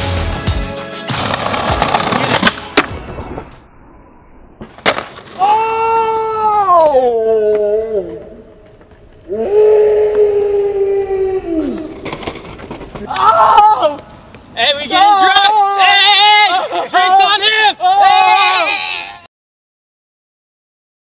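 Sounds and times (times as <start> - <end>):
skateboard wheels rolling on pavement: 1.0 - 3.6, 4.6 - 5.8, 7.8 - 10.3, 11.4 - 19.1
skateboard cracking: 1.1 - 3.4, 4.6 - 5.5, 11.7 - 13.3
person shouting: 5.4 - 8.2, 13.1 - 14.0, 14.8 - 19.3.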